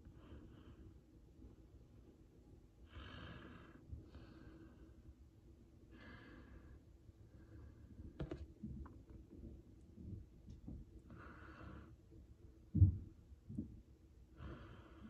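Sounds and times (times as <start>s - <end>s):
faint breathing: 0.0s - 1.1s, 2.8s - 5.2s, 5.8s - 8.2s, 11.0s - 12.2s, 14.3s - 15.0s.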